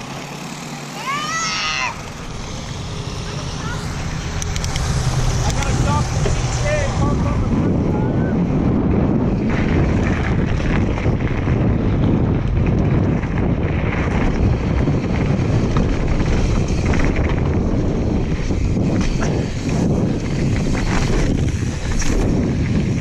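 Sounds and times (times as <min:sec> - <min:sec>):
wind rushing over microphone: 0:00.0 - 0:23.0.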